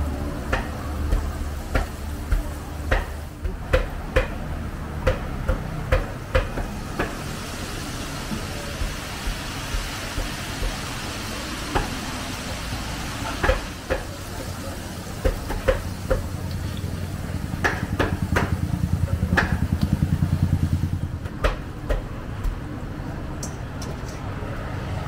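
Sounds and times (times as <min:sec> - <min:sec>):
garlic sizzling in hot oil: 0:06.7 - 0:21.1.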